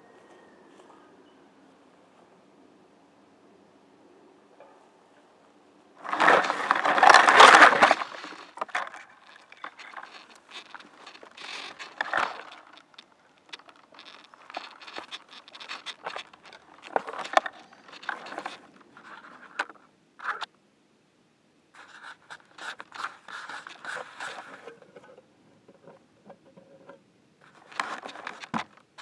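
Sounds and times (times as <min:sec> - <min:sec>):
crackling rustle of leaves and twigs: 0:04.6 - 0:20.5, 0:21.7 - 0:26.8, 0:27.4 - 0:29.0
scrapes and clicks in twigs: 0:06.0 - 0:20.5, 0:21.8 - 0:25.2, 0:27.4 - 0:29.0.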